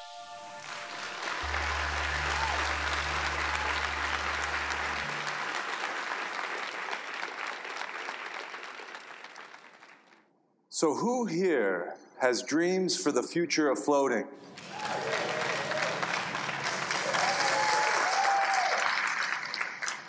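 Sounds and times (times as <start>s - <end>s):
audience applauding: 0.6s - 10.2s, 14.5s - 20.0s.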